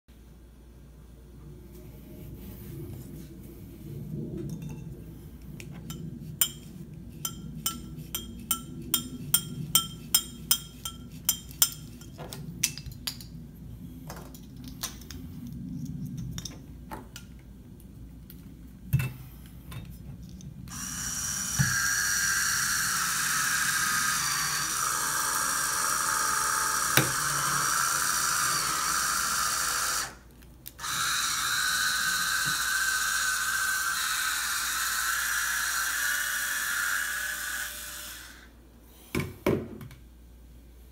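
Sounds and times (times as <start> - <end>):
wine opener motor whine: 20.7 - 38.6.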